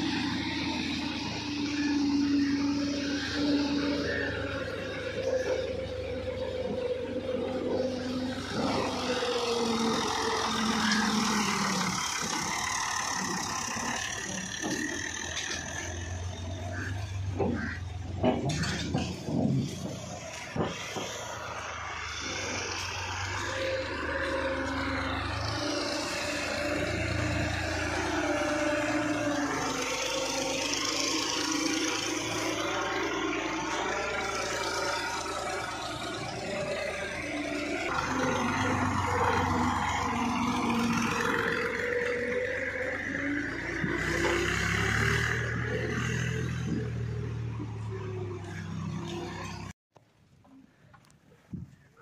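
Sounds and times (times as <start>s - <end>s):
tractor diesel engine running: 0.0s - 50.1s.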